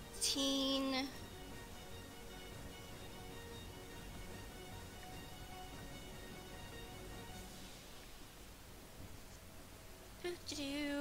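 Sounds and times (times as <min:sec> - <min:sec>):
steady low hum: 0:00.0 - 0:11.0
light hiss: 0:03.8 - 0:11.0.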